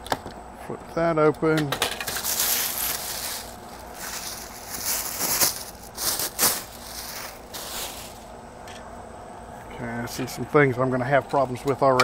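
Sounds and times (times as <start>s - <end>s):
plastic and paper wrap crinkling: 2.0s - 8.3s.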